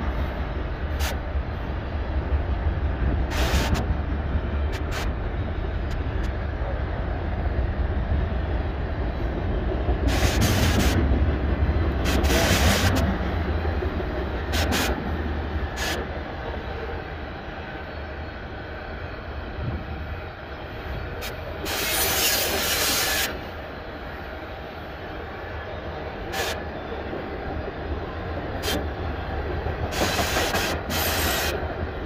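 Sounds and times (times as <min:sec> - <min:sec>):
freight train wheels rumbling: 0:00.0 - 0:32.0
train cars clanking: 0:28.1 - 0:31.8.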